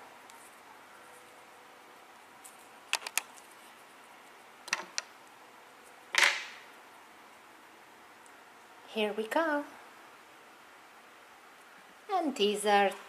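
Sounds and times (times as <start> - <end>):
plastic toy pieces clicking: 2.9 - 3.3.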